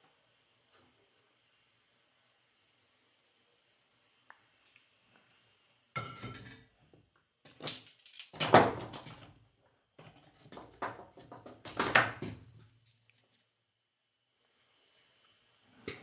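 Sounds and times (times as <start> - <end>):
metal tools clattering: 7.5 - 9.2.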